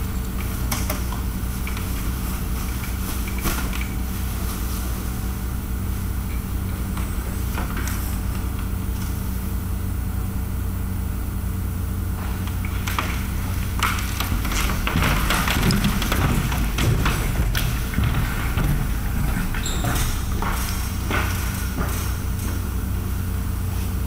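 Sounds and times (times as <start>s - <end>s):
low hum and rumble of hangar: 0.0s - 24.0s
faint clicks and knocks: 12.2s - 22.6s.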